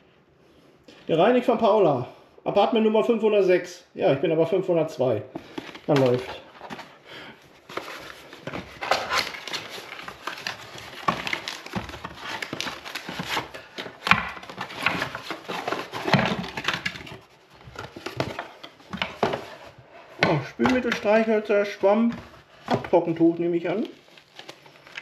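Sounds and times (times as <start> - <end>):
package rustling: 5.4 - 25.0
items knocking and clacking: 7.7 - 21.3.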